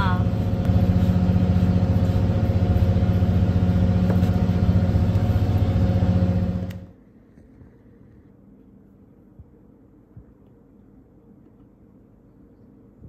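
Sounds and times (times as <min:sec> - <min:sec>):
boat engine idling: 0:00.0 - 0:06.8.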